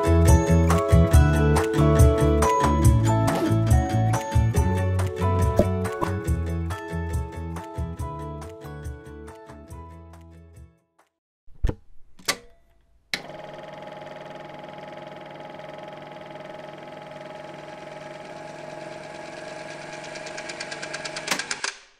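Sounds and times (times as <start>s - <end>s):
film projector whirring clatter: 13.2s - 21.8s.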